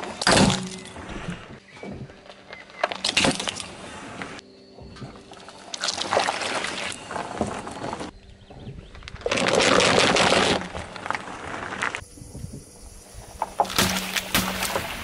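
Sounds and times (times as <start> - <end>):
paper cups being crushed: 9.1 - 11.9.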